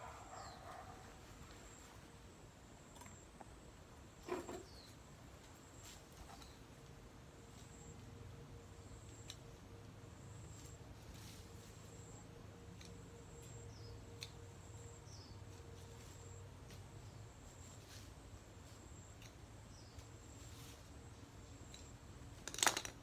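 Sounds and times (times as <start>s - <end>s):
stems snapping: 14.2s - 14.4s.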